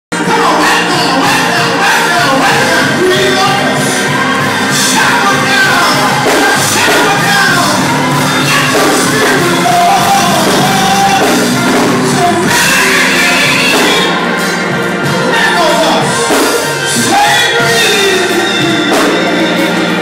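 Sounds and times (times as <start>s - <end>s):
gospel band playing: 0.1s - 20.0s
person singing: 0.1s - 20.0s
congregation shouting: 0.2s - 20.0s.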